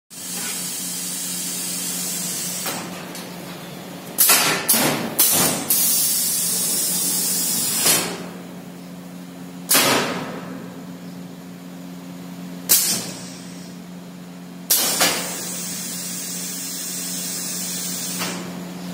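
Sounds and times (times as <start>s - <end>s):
compressed air hissing from valves: 0.2s - 2.8s, 5.2s - 8.1s, 14.7s - 18.5s
pneumatic cylinders actuating: 0.2s - 3.1s, 12.7s - 13.8s
steady low hum: 0.2s - 18.9s.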